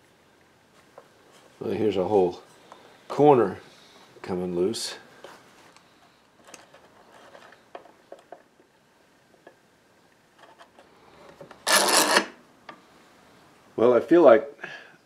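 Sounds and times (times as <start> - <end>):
metal clamps scraping rattle: 11.5 - 12.3.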